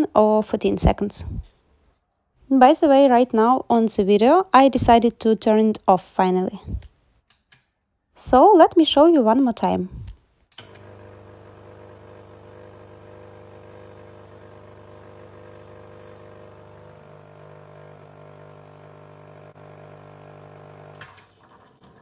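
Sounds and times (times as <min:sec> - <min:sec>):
espresso machine pump humming: 0:10.6 - 0:21.5.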